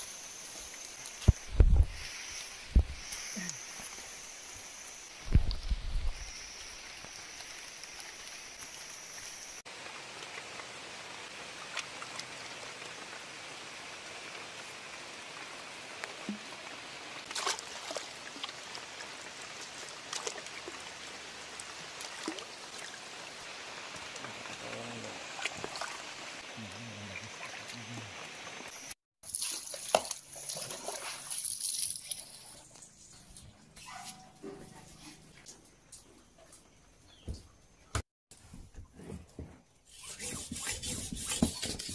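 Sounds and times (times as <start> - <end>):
hose water splashing on floor: 0.0 - 26.5, 28.5 - 32.8
steady watery hiss: 0.0 - 32.6.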